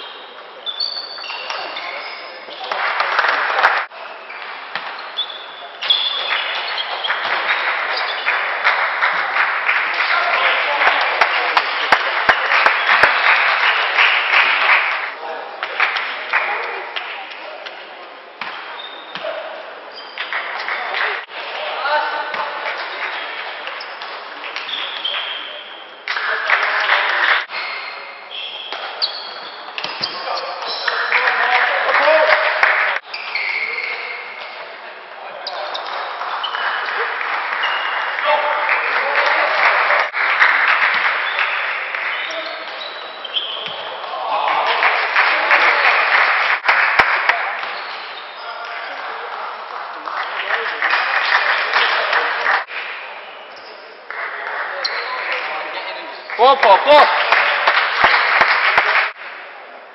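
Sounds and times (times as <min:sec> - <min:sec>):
shoes squeaking on floor: 0:00.0 - 0:02.6, 0:04.2 - 0:07.2, 0:19.9 - 0:20.2, 0:27.5 - 0:30.9, 0:33.0 - 0:34.3, 0:42.2 - 0:43.9, 0:47.7 - 0:49.0.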